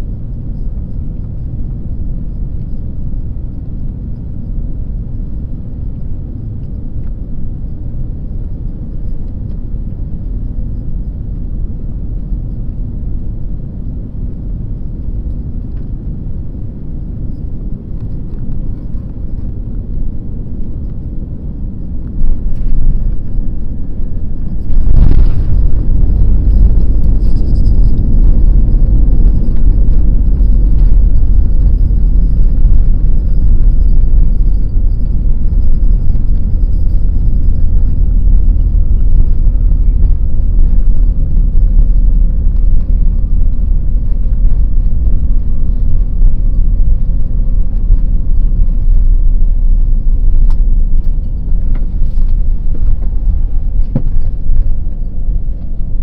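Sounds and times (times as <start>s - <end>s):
faint falling whine: 0.0s - 56.0s
low rumble of landing roll: 21.8s - 56.0s.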